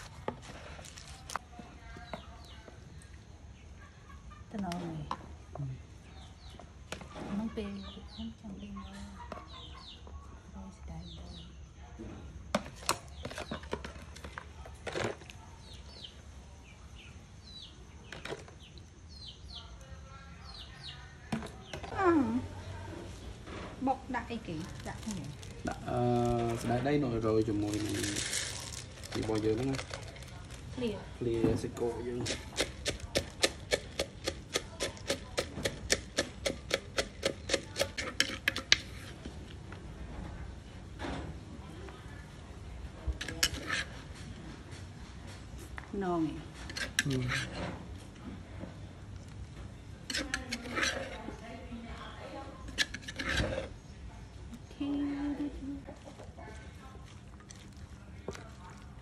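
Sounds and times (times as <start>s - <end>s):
soft stirring rustles: 0.0s - 3.6s, 12.6s - 59.0s
wooden pestle pounding in mortar: 32.2s - 38.8s.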